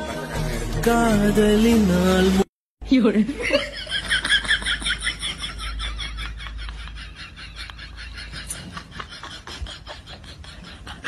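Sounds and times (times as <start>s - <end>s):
stifled snickering laughter: 3.6s - 11.0s.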